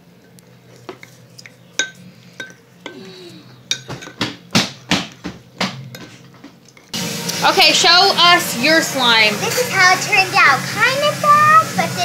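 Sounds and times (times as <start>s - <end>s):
bowls and utensils clinking: 0.2s - 4.4s, 5.2s - 7.0s.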